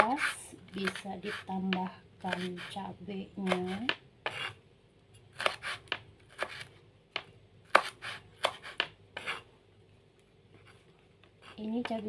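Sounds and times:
knife chopping on cutting board: 0:00.0 - 0:02.8, 0:03.4 - 0:04.6, 0:05.4 - 0:09.4.

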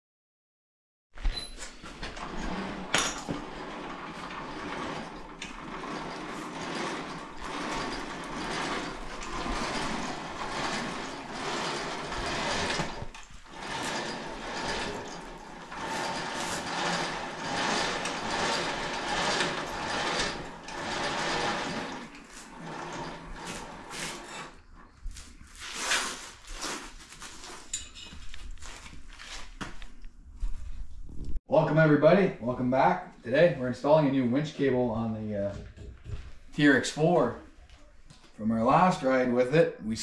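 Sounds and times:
electric winch running: 0:01.9 - 0:24.6.

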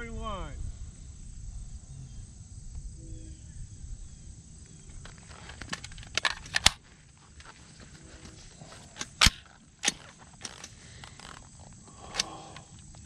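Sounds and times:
rifle metallic clicks: 0:05.5 - 0:06.8, 0:08.2 - 0:12.7
rifle loud clack: 0:09.0 - 0:10.1.

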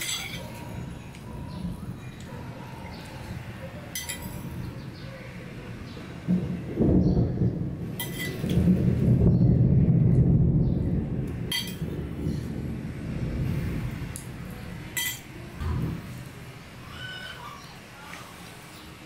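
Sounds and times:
loud low rumble: 0:04.5 - 0:16.9.

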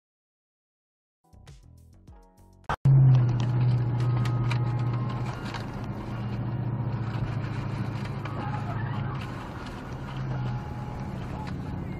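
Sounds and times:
car engine and road drone: 0:02.8 - 0:11.9.

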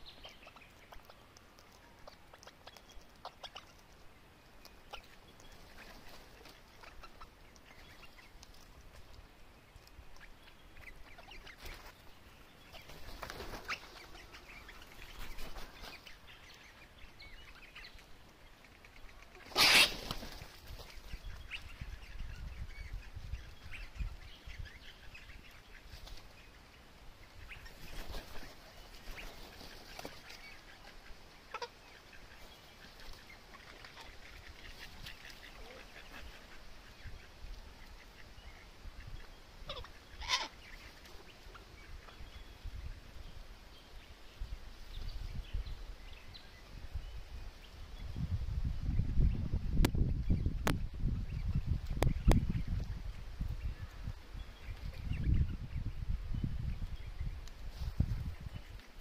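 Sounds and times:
cockatoos screeching: 0:19.4 - 0:20.2.

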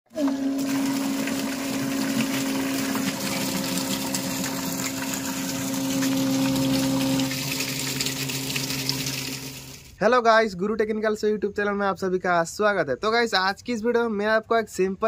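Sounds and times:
water gushing and splashing: 0:00.1 - 0:10.0
water pump motor humming: 0:00.1 - 0:10.0.

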